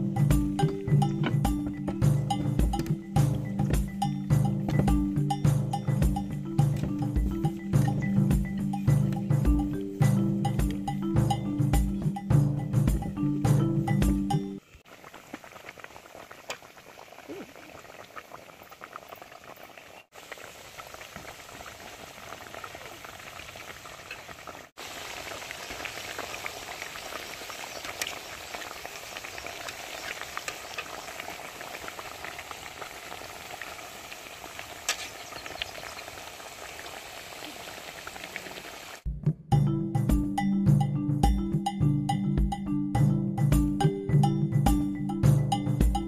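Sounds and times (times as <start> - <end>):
food sizzling in hot oil: 14.8 - 39.0.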